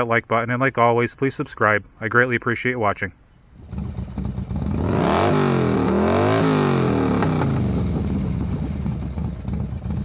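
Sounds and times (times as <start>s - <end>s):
motorcycle engine revving and idling: 3.6s - 10.0s.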